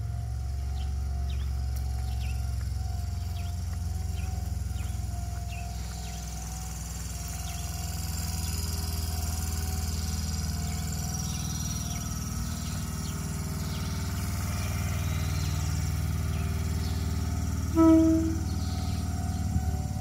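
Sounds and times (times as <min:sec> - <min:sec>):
train electric hum: 0:00.0 - 0:20.0
short loud tone: 0:17.7 - 0:19.0.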